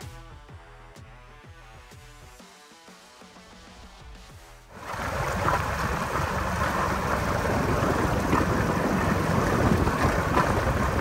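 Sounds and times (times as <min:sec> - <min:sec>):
outboard boat engine: 0:04.7 - 0:11.0
rushing water: 0:04.7 - 0:11.0
wind noise: 0:04.8 - 0:11.0.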